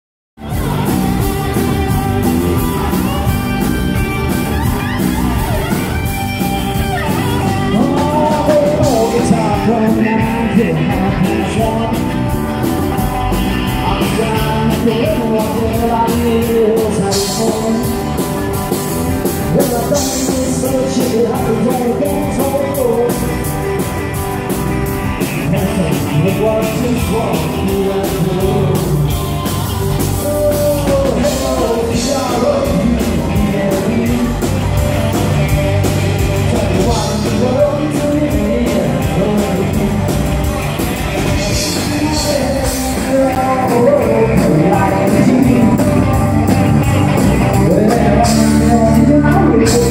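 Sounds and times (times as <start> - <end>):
live country band playing: 0.4 - 49.9
man singing into microphone: 7.4 - 12.2, 13.6 - 18.3, 19.4 - 23.5, 25.4 - 35.3, 36.2 - 40.4, 41.3 - 46.5, 47.4 - 49.9.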